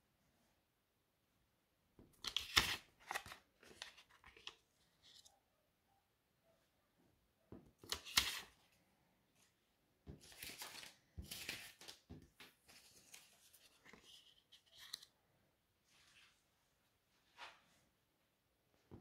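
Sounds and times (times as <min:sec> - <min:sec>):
banknotes rustling: 0:02.2 - 0:05.3, 0:07.8 - 0:08.7, 0:09.4 - 0:15.2.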